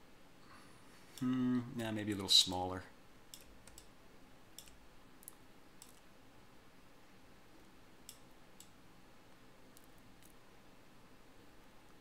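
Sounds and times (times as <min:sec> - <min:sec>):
computer mouse clicks: 0:03.3 - 0:03.9, 0:04.6 - 0:06.1, 0:08.0 - 0:08.8.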